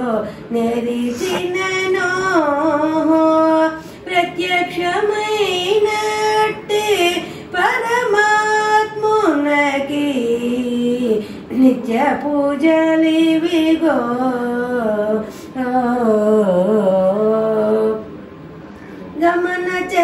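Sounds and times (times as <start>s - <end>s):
woman singing unaccompanied: 0.0s - 18.1s, 19.2s - 20.0s.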